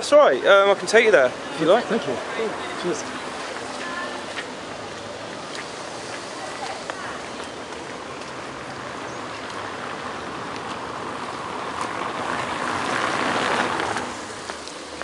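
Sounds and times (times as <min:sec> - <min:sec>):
steady hiss: 0:13.2 - 0:15.0.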